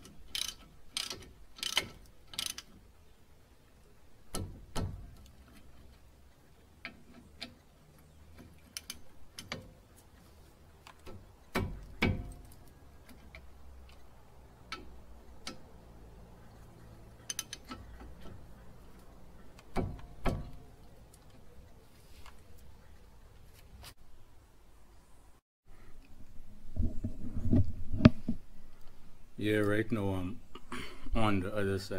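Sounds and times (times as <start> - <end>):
ratchet wrench clicking: 0.3 - 2.7, 17.2 - 17.7.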